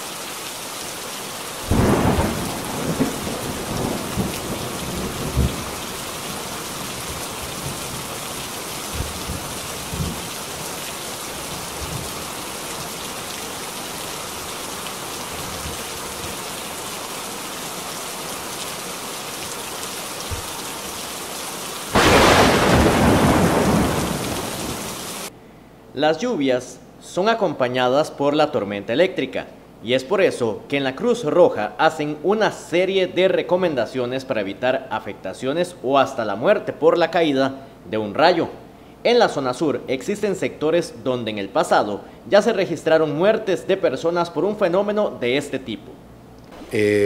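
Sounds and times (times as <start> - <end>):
heavy rain hissing: 0.0 - 25.3, 46.5 - 47.0
thunder rumbling: 1.7 - 8.1, 22.0 - 25.0.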